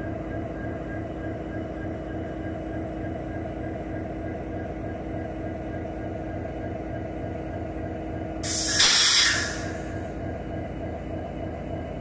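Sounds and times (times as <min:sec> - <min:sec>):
compressed air hissing: 0:08.4 - 0:09.9
locomotive engine rumbling: 0:08.4 - 0:10.4.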